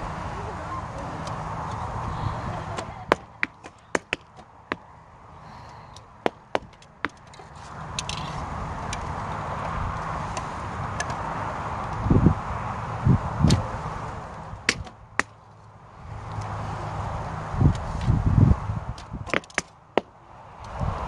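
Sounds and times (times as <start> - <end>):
steady background noise: 0.0 - 21.0
arrows striking targets: 2.8 - 4.8, 14.7 - 15.4, 19.0 - 20.1.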